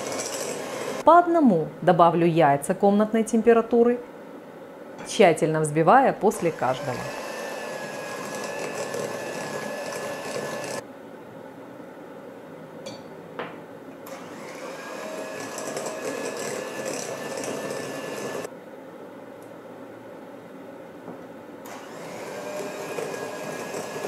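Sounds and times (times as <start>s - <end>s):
electric hand mixer whining: 0.0s - 1.0s, 6.3s - 10.8s, 14.1s - 18.5s, 21.7s - 24.0s.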